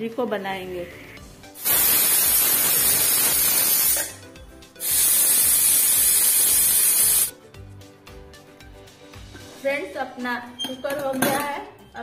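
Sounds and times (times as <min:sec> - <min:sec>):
pressure cooker whistling: 0:01.6 - 0:04.2, 0:04.8 - 0:07.3.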